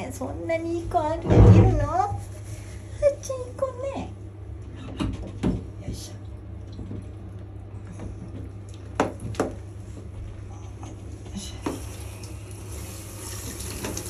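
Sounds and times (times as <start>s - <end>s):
shower water running into bathtub: 11.0s - 14.0s.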